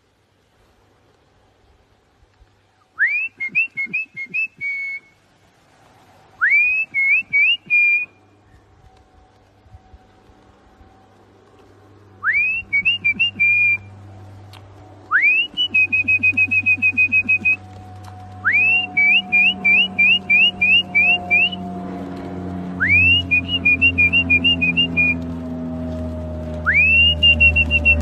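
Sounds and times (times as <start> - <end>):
person whistling: 3.0 - 5.1, 12.2 - 13.8, 15.1 - 17.6, 18.4 - 21.6, 26.7 - 28.0
low hum: 4.2 - 28.0.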